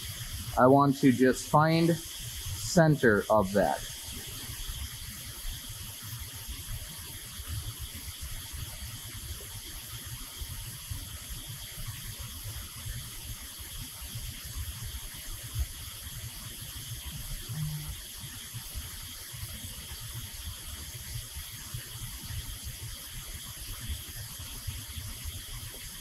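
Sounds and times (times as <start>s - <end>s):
constant hiss: 0.0s - 26.0s.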